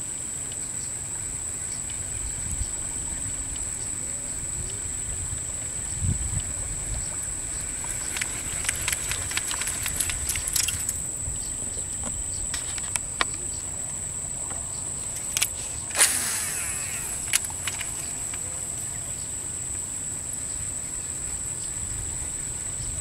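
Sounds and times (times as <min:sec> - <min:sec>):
high insect drone: 0:00.0 - 0:23.0
low outdoor rumble: 0:00.0 - 0:23.0
sharp ticks: 0:07.1 - 0:11.1, 0:15.2 - 0:19.8.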